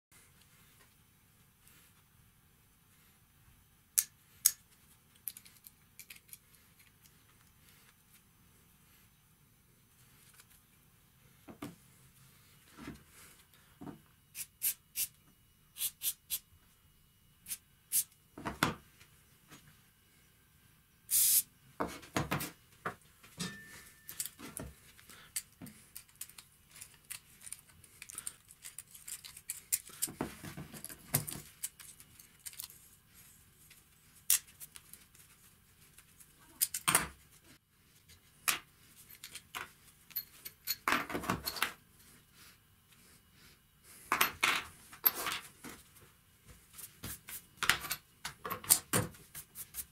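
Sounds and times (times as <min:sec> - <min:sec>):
aerosol spray hiss: 0:14.3 - 0:15.2, 0:15.8 - 0:16.4, 0:21.1 - 0:21.5.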